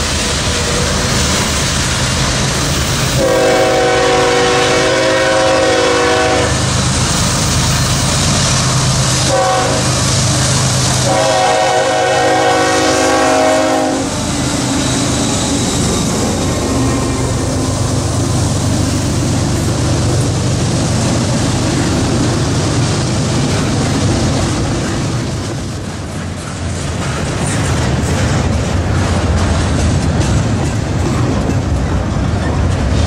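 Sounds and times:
freight train rumbling past: 0:00.0 - 0:33.0
locomotive horn blasts: 0:03.2 - 0:06.6, 0:09.2 - 0:10.1, 0:11.0 - 0:14.2.

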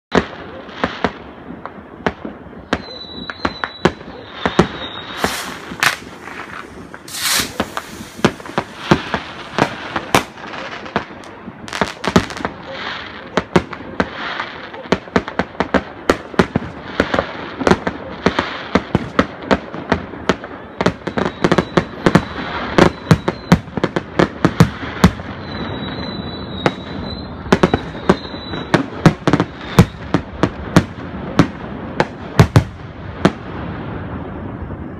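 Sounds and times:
fireworks bangs and pops: 0:00.1 - 0:34.9
firework whistle: 0:02.6 - 0:13.5, 0:20.3 - 0:23.9, 0:24.7 - 0:30.3.

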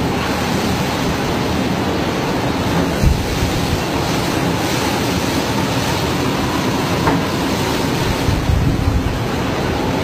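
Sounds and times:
storm wind and heavy seas roaring: 0:00.0 - 0:10.0
wind buffeting microphone: 0:00.7 - 0:10.0.

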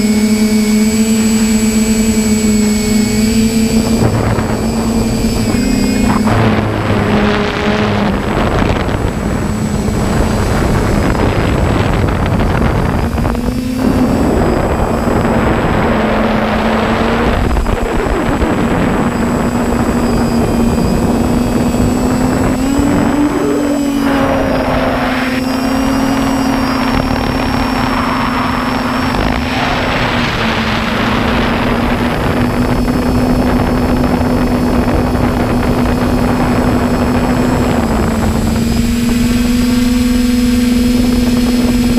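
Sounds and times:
drone motors buzzing: 0:00.0 - 0:41.9.

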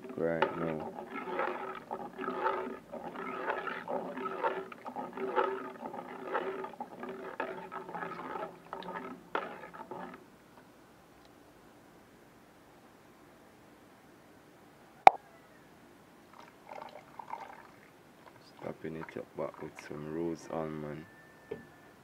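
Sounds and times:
spoon stirring thick porridge: 0:00.0 - 0:10.2.

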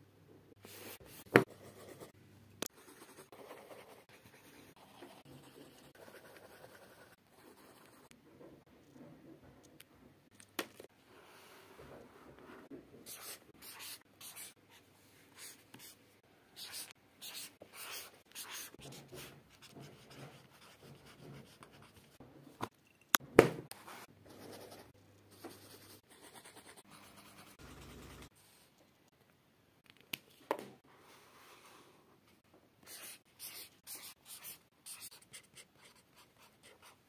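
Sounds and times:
highlighter scratching on paper: 0:13.0 - 0:16.0, 0:16.6 - 0:22.0, 0:32.8 - 0:37.0.

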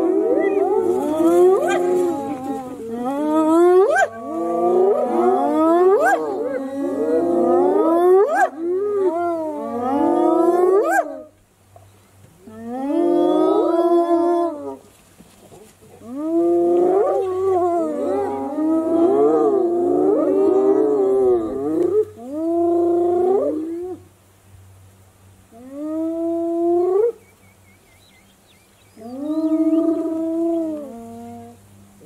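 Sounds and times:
hyenas whooping and wailing: 0:00.0 - 0:11.2.

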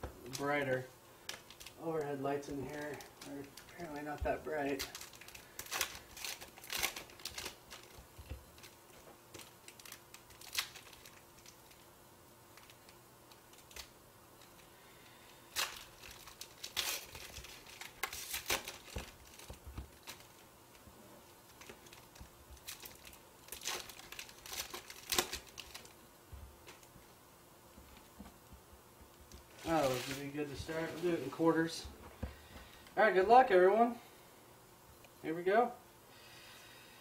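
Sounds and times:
foil wrappers crinkling and tearing: 0:00.2 - 0:11.9, 0:12.5 - 0:26.0, 0:26.6 - 0:26.9, 0:29.3 - 0:32.9.

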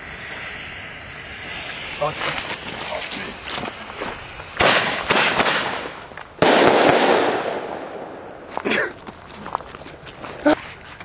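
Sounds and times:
firework fuse hissing: 0:00.0 - 0:08.5
firework cracks: 0:00.0 - 0:09.2
firework bang: 0:03.3 - 0:08.6.

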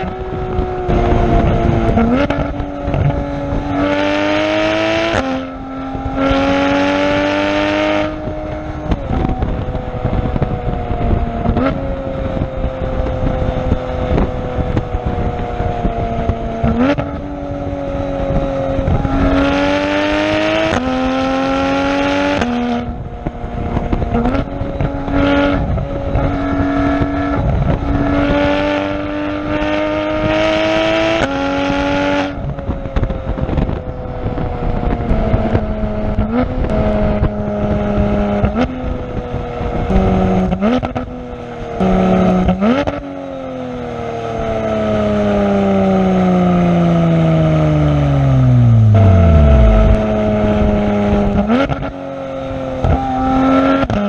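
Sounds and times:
sports car exhaust revving: 0:00.0 - 0:43.1, 0:44.4 - 0:54.0.

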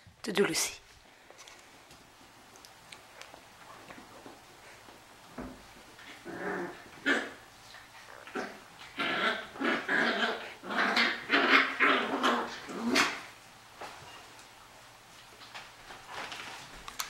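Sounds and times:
puppies play-growling: 0:03.0 - 0:14.6.

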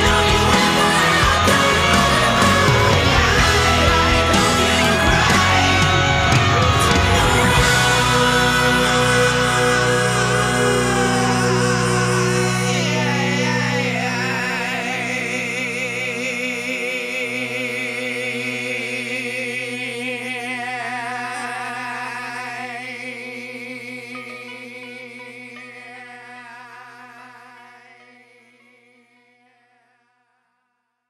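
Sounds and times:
sustained chords: 0:00.0 - 0:20.0.

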